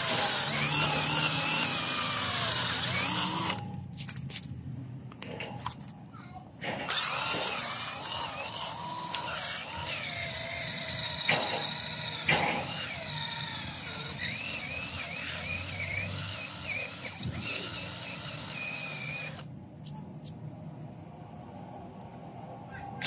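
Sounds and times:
cordless drill boring into wood: 0.0s - 3.7s, 6.8s - 19.5s.

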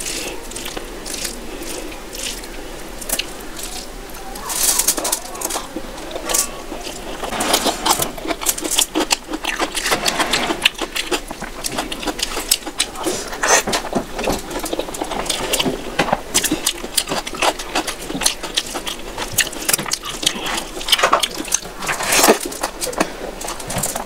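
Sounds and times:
fingers squishing rice: 0.0s - 24.0s
wet chewing: 0.0s - 24.0s.

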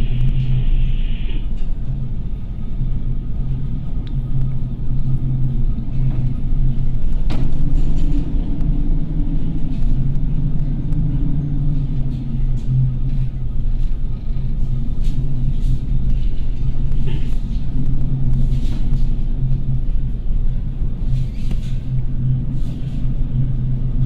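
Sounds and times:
deep ship rumble: 0.0s - 24.0s.

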